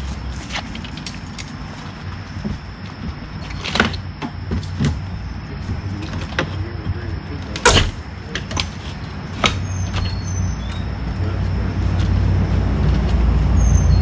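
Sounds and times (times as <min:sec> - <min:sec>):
steady low hum: 0:00.0 - 0:13.6.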